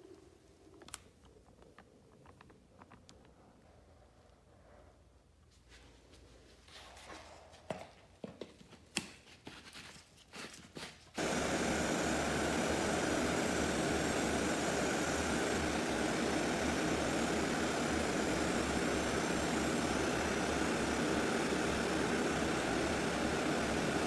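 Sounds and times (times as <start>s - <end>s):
compressed air hissing: 11.2s - 24.0s.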